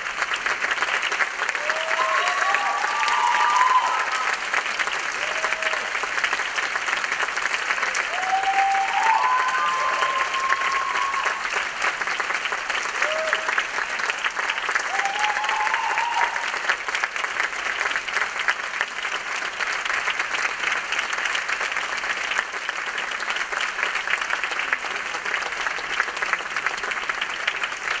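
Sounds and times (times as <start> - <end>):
audience applauding: 0.0 - 28.0
person cheering: 1.5 - 4.4, 8.0 - 11.5, 13.0 - 13.6, 14.8 - 16.6.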